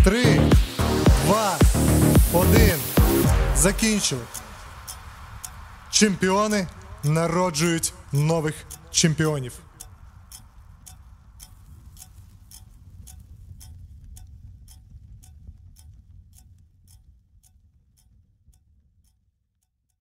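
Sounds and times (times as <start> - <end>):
low bass drone: 0.0 - 8.9
clock-like ticking music: 0.0 - 19.2.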